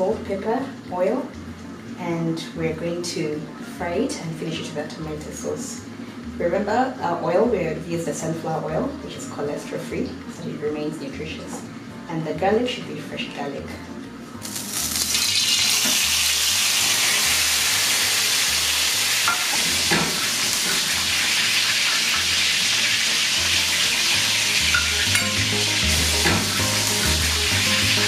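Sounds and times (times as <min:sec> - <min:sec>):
fish sizzling in oil: 0:14.4 - 0:28.0.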